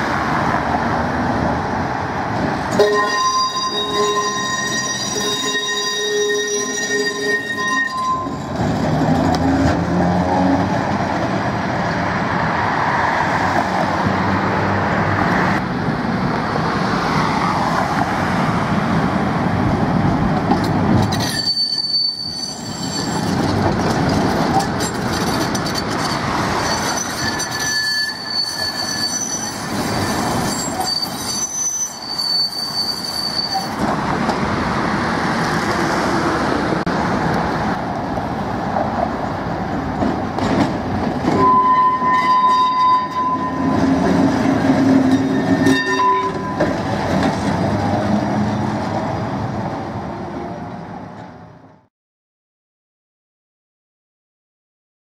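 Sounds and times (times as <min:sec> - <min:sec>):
tram rumbling on rails: 0:00.0 - 0:51.9
tram wheels squealing: 0:02.6 - 0:09.8, 0:20.5 - 0:34.2, 0:39.8 - 0:49.4.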